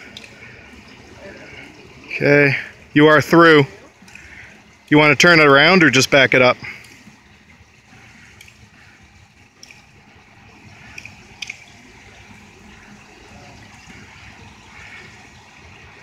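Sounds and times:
pool water lapping and trickling: 0:00.0 - 0:16.0.

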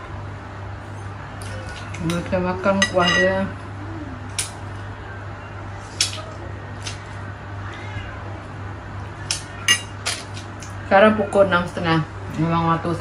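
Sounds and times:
steady low hum: 0:00.0 - 0:13.0
spoon clinking against bowl: 0:02.8 - 0:03.4.

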